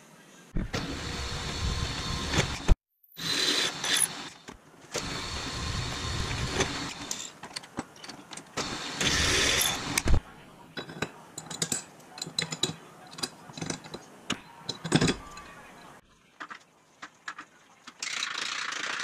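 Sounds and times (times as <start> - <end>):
drill press running: 0.6 - 7.3, 8.6 - 10.2.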